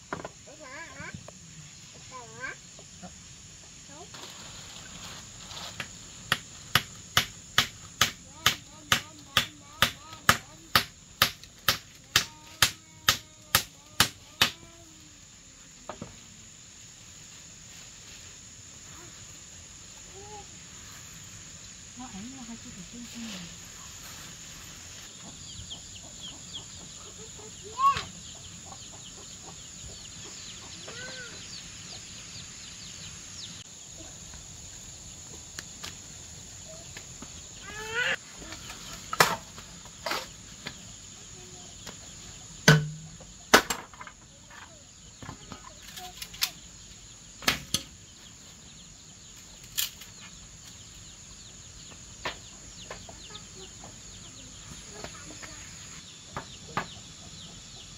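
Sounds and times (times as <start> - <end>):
high insect drone: 0.0 - 57.8
bamboo poles knocking: 42.6 - 44.1.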